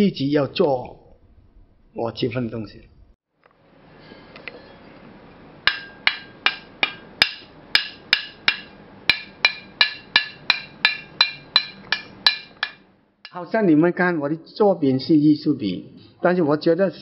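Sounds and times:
metal tool tapping metal: 5.7 - 12.8.

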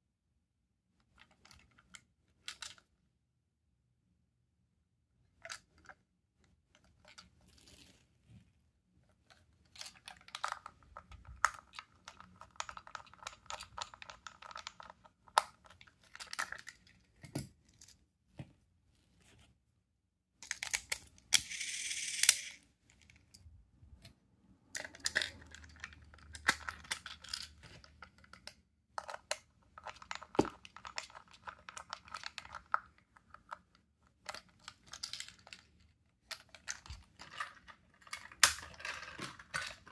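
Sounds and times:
plastic toy parts clicking and rattling: 1.1 - 2.9, 9.2 - 18.0, 20.4 - 23.5, 24.7 - 39.9.

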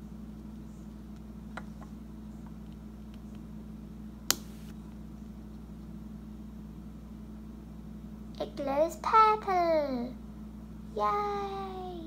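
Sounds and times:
steady low hum: 0.0 - 12.0
small switch click: 4.3 - 4.5.

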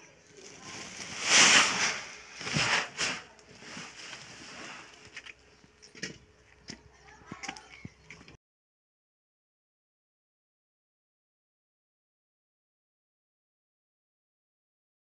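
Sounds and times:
plastic sack rustling: 0.3 - 5.4.

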